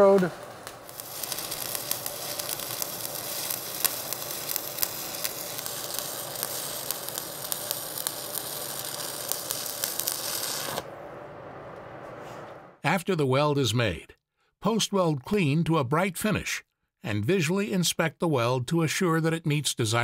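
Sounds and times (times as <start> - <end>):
welding arc crackling: 0.0 - 10.9.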